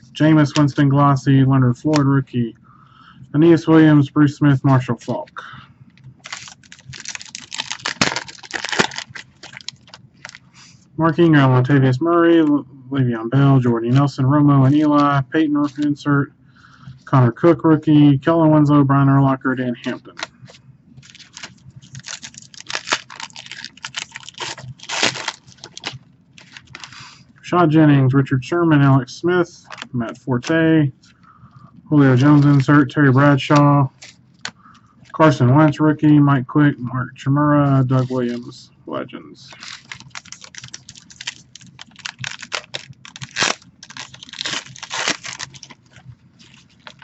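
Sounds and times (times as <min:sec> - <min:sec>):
wrapper crinkling and tearing: 0:06.2 - 0:10.5, 0:21.0 - 0:27.0, 0:39.5 - 0:47.0.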